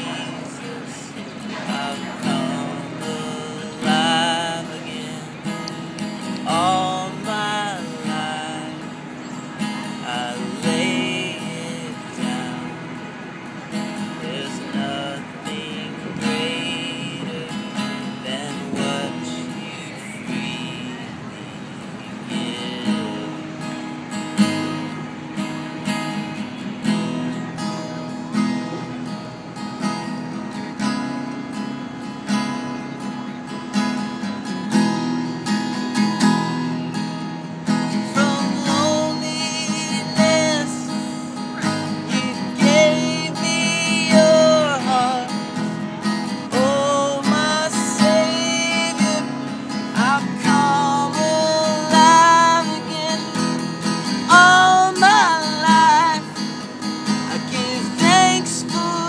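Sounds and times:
man singing: 0:00.0 - 0:23.8, 0:37.7 - 0:59.0
acoustic guitar strumming: 0:00.0 - 0:59.0.

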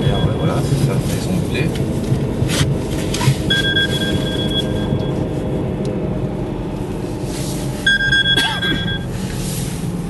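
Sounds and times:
car engine and road noise: 0:00.0 - 0:10.0
two-tone phone ring: 0:07.9 - 0:09.1.

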